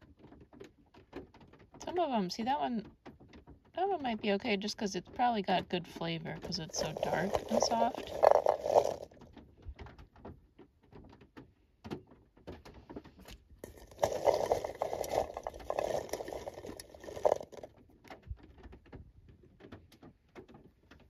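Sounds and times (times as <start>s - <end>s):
cranberries rolling in a pot: 5.2s - 9.3s, 13.6s - 17.8s.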